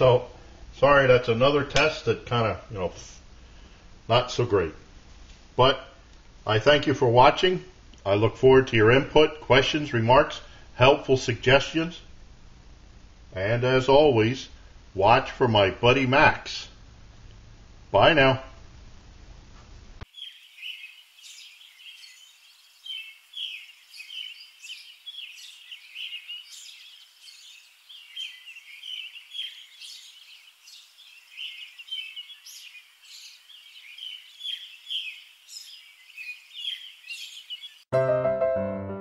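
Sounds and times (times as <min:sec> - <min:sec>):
birds chirping: 0:20.0 - 0:37.9.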